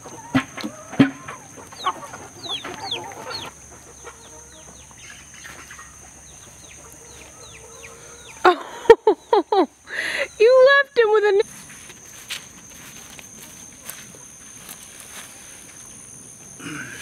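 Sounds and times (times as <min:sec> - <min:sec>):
beaks pecking the ground: 0:00.0 - 0:08.4
hens clucking: 0:00.0 - 0:09.9.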